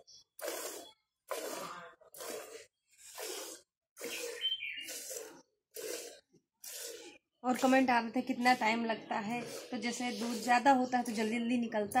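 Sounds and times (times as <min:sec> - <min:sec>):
milk squirting into pail: 0:00.1 - 0:07.8.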